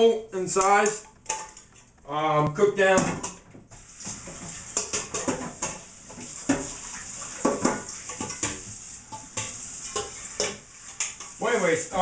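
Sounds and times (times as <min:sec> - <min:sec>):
metal pots and pans clattering: 0:00.8 - 0:01.9, 0:02.9 - 0:03.5, 0:04.1 - 0:11.4.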